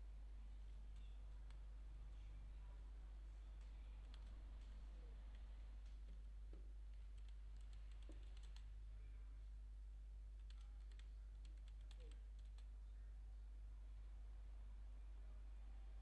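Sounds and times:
low steady hum: 0.0 - 16.0
computer keyboard typing: 7.1 - 8.7, 10.4 - 12.7.

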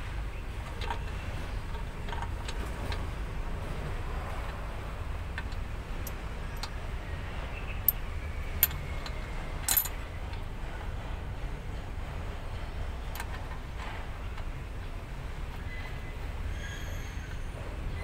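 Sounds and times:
small metal clicks: 8.6 - 10.4
metal rattle: 9.6 - 10.0.

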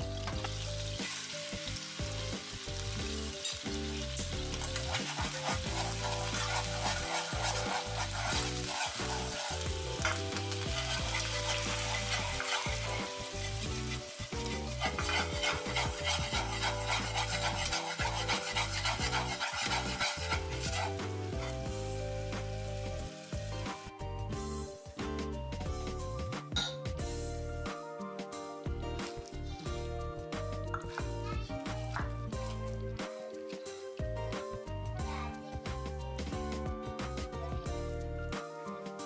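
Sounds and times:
sauce bubbling and sizzling in pan: 0.0 - 26.3
chopsticks scraping pan: 4.5 - 21.7.

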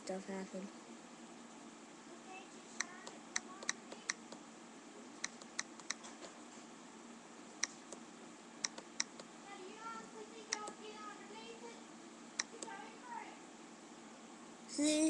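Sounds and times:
faint room hiss: 0.0 - 15.0
computer mouse clicks: 2.8 - 4.4, 5.2 - 6.1, 8.6 - 9.3, 10.5 - 10.8, 12.4 - 12.8.

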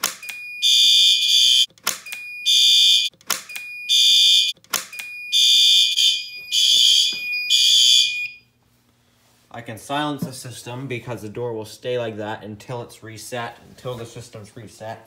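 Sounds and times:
fire alarm horn blasts: 0.5 - 1.7, 2.4 - 3.1, 3.8 - 4.5, 5.2 - 8.5
sharp clicks: 4.5 - 5.1.

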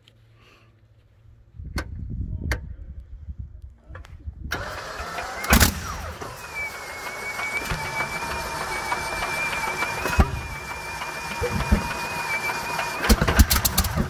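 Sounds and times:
aero engine cranking: 4.5 - 14.0
aero engine running: 4.5 - 14.0
engine pops: 4.5 - 14.0
engine bang: 4.6 - 14.0.

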